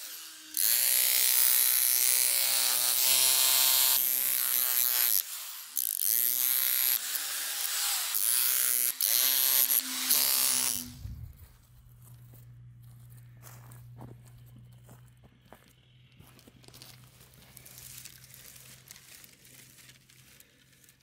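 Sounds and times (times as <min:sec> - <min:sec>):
electric jackhammer chopping soil: 0:00.0 - 0:11.2.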